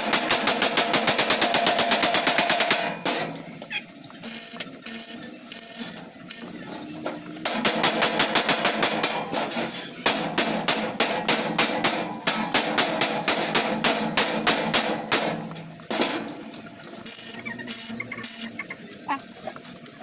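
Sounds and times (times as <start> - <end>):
hammer striking sheet metal: 0.0 - 3.4, 7.4 - 16.4.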